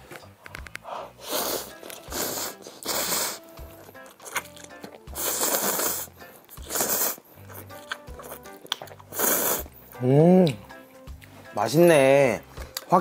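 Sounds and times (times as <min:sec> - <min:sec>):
background music: 0:00.0 - 0:13.0
person slurping noodles: 0:01.2 - 0:03.5, 0:05.0 - 0:07.7, 0:08.9 - 0:09.7.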